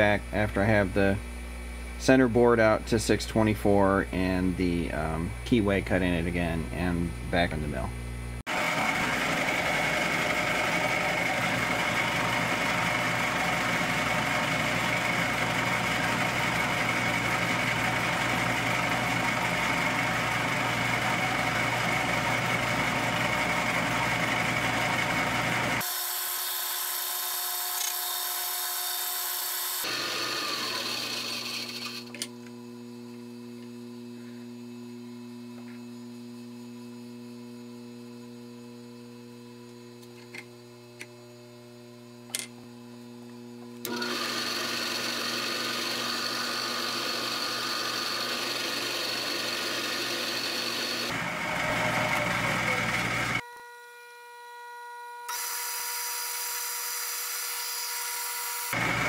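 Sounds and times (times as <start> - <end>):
milling machine whine with cutting: 8.5 - 32.2, 43.8 - 53.4, 55.3 - 59.0
motor winding down: 8.5 - 32.3, 43.8 - 53.4, 55.3 - 59.0.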